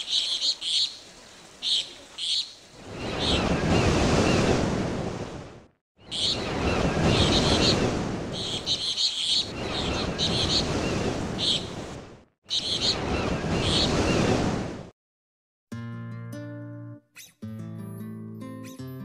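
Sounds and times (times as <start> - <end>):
birds chirping: 0.0 - 4.4, 6.0 - 11.9, 12.5 - 14.3
ocean surf washing in: 0.8 - 14.9.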